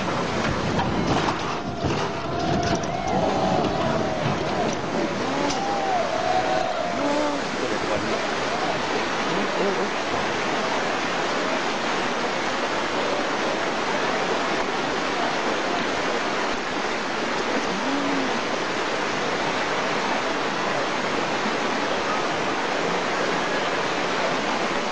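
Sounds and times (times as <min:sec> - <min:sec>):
floodwater rushing: 0:00.0 - 0:24.9.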